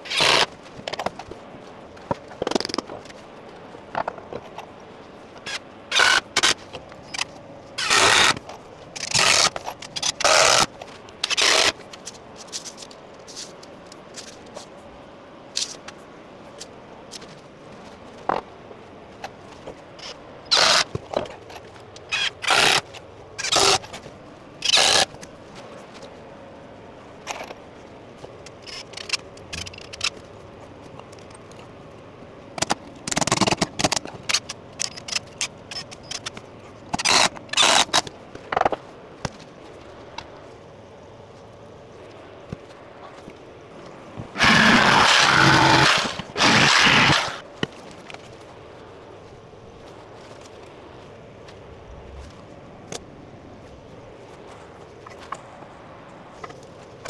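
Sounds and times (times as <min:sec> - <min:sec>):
cordless drill bursts: 0:44.4 - 0:47.4.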